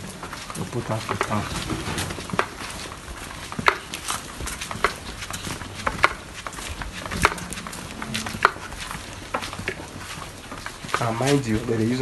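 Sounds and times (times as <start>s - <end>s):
footsteps on concrete: 0.0s - 12.0s.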